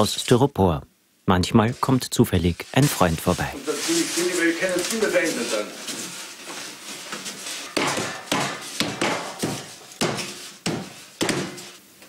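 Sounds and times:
hands knocking on styrofoam blocks: 0:07.6 - 0:11.8.

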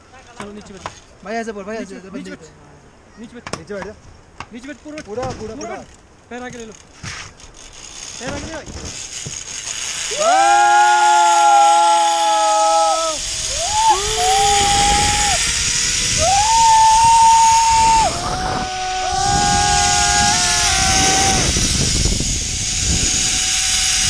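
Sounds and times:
trolley rolling on steel cable: 0:05.7 - 0:24.0
wind rush: 0:10.0 - 0:24.0
people yelling whoops: 0:10.1 - 0:21.6.

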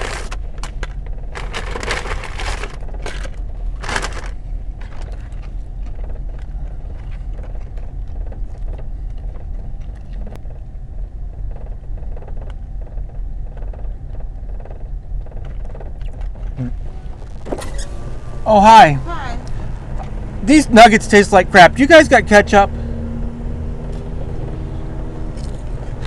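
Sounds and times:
vehicle engine idling: 0:00.0 - 0:26.0
paper rustling: 0:01.4 - 0:05.4.

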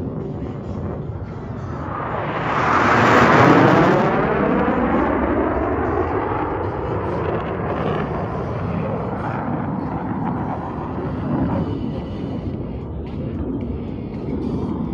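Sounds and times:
jet engine noise: 0:00.0 - 0:14.9.

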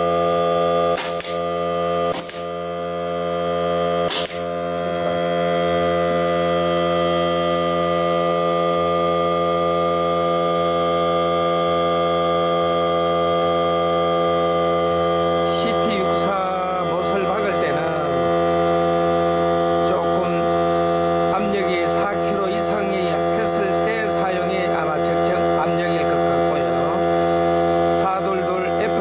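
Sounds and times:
air compressor motor hum: 0:00.0 - 0:29.0
pneumatic nailer firing: 0:00.9 - 0:02.6, 0:04.0 - 0:04.6.

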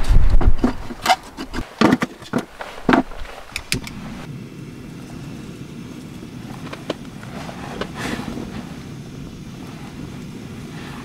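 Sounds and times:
steady low rumble: 0:03.0 - 0:11.0.

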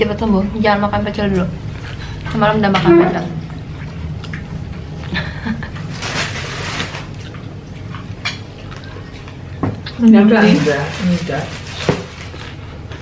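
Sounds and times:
chewing leafy vegetables: 0:03.4 - 0:13.0.

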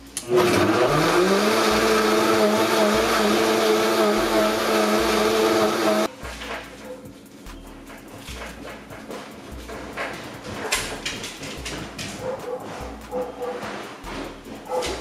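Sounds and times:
blender motor running: 0:00.2 - 0:06.1.

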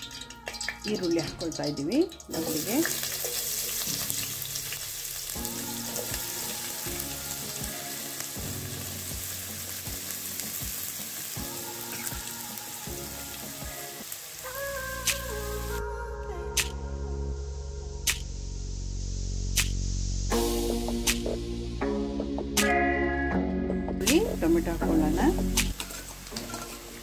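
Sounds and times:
onions sizzling in oil: 0:00.0 - 0:15.8, 0:24.3 - 0:27.0
background music: 0:00.0 - 0:18.9, 0:19.5 - 0:27.0.

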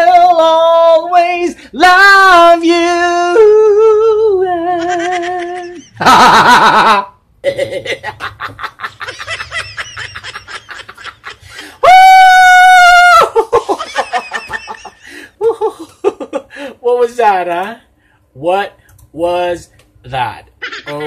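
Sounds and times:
man laughing: 0:04.6 - 0:12.3, 0:13.0 - 0:16.7, 0:20.6 - 0:21.0.

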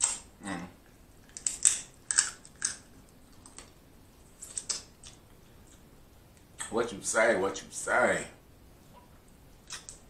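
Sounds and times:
crab shell cracking: 0:00.0 - 0:00.3, 0:01.2 - 0:03.8, 0:04.4 - 0:05.8, 0:09.6 - 0:10.0.

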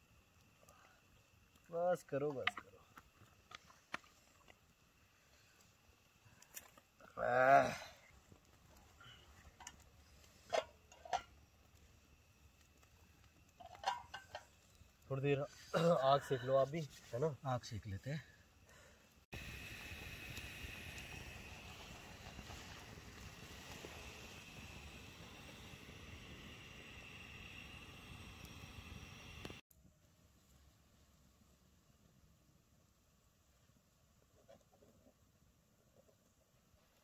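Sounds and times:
faint steady hiss: 0:00.0 - 0:37.0
thin high whine: 0:19.4 - 0:29.6.

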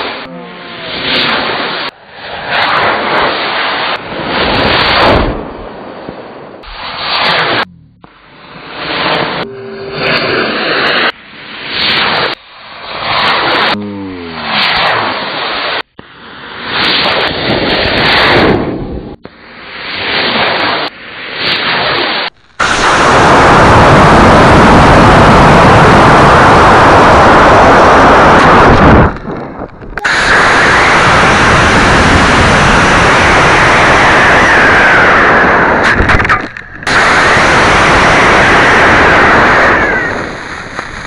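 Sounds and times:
rocket motor exhaust rush: 0:00.0 - 0:06.0, 0:06.6 - 0:41.0
wind over airframe: 0:00.0 - 0:41.0.

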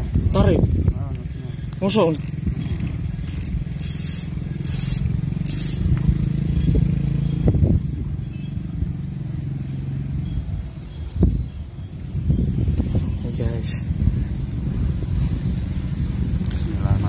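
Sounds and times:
fishing reel whirring: 0:02.2 - 0:05.9
motor running: 0:02.2 - 0:06.1.

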